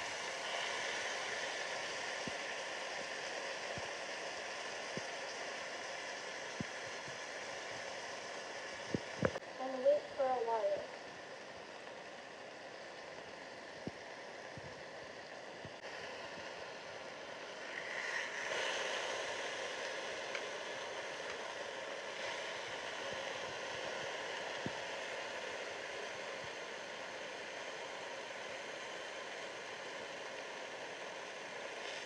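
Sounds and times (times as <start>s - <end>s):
bacon sizzling in a frying pan: 0.0s - 14.6s.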